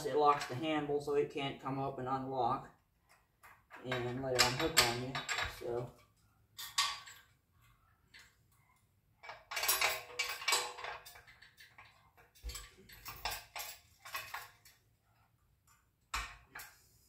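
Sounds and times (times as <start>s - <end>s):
steel parts clinking and scraping: 3.1s - 8.6s, 9.2s - 14.9s.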